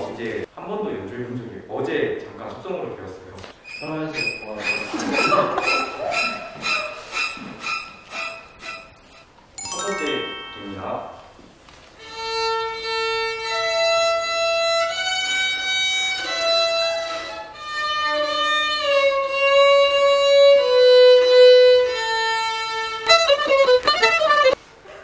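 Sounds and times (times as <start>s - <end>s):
violin long bowed notes: 12.0s - 24.6s.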